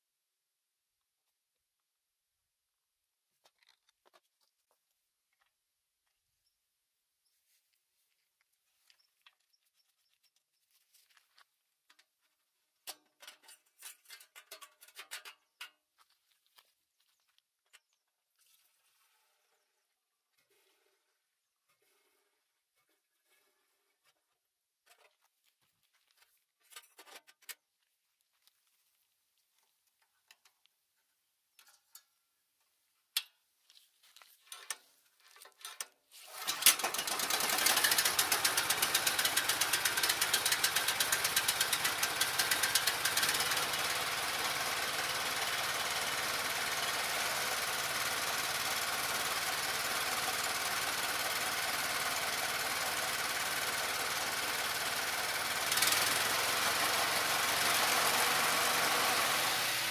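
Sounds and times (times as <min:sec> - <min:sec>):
small engine running: 0:36.2 - 0:59.9.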